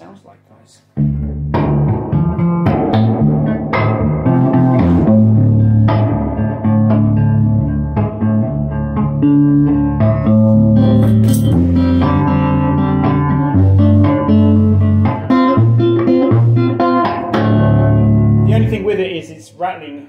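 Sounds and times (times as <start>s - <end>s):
person talking: 0.0s - 1.0s, 18.4s - 20.0s
electric guitar through valve amp: 1.0s - 19.3s.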